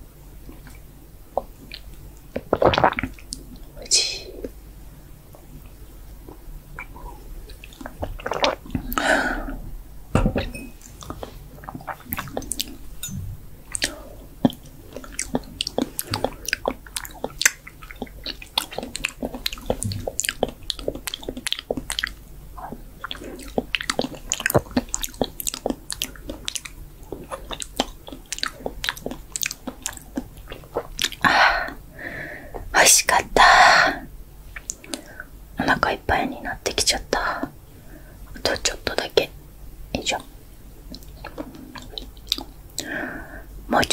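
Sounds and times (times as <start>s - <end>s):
wet mouth chewing and smacking: 0.6s - 3.7s, 6.3s - 9.0s, 10.8s - 31.8s, 34.5s - 35.1s, 40.9s - 42.9s
breathy sound: 8.9s - 9.6s.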